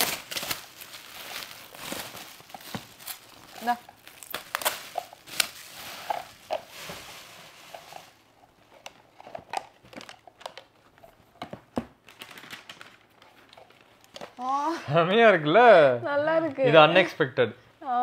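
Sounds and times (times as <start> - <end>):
wrapping paper crinkling: 0.0 - 11.4, 12.0 - 14.4.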